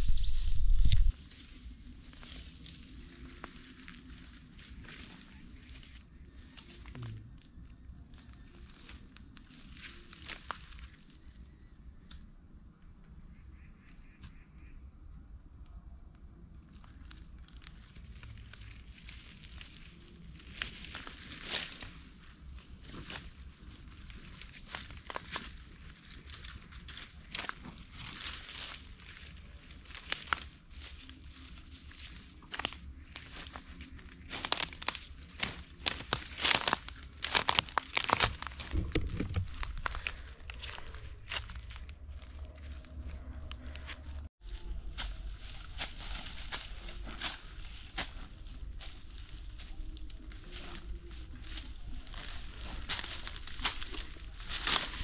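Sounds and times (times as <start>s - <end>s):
high-pitched insect drone: 0.0s - 55.0s
dry grass and twigs crackling: 0.9s - 12.4s, 16.6s - 55.0s
papery snapping and tearing: 34.4s - 41.8s
dull low bump: 38.6s - 42.3s.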